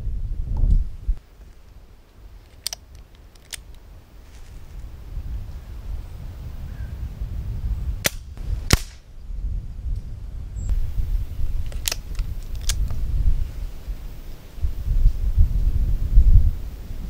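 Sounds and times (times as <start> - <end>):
wind rumble on microphone: 0.0 - 1.2, 3.7 - 17.0
air rifle cracks: 2.4 - 3.8, 8.0 - 9.1, 11.5 - 13.0
light clicks: 11.6 - 13.0.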